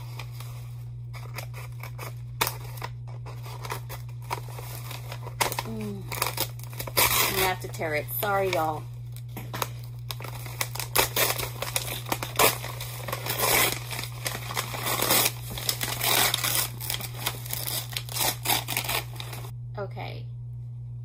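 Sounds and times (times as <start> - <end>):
plastic packaging crinkling and tearing: 0.0 - 19.5
steady low hum: 0.0 - 21.0.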